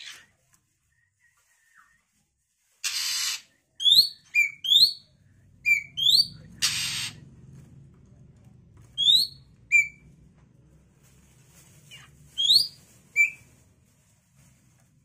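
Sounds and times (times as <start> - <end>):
bird harsh rasping calls: 2.8 - 5.0, 5.6 - 7.2.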